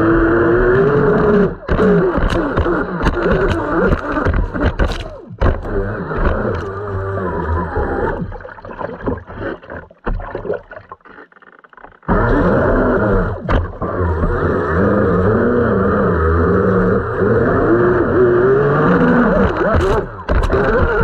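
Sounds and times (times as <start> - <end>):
electric motor whine: 0.0 - 8.3, 12.1 - 21.0
choppy water: 0.0 - 21.0
rushing water: 7.8 - 12.0.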